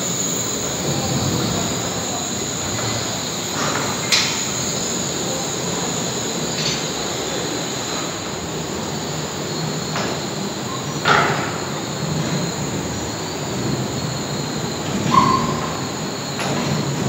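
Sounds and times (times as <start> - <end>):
suspended railway car rumbling: 0.0 - 17.0
brief squeak: 15.0 - 15.9.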